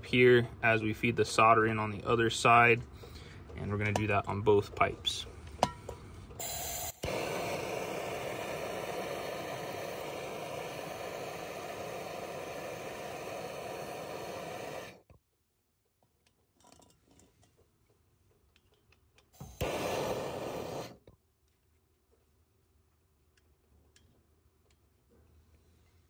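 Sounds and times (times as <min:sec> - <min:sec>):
gas torch hissing: 0:06.4 - 0:15.1, 0:19.4 - 0:21.0.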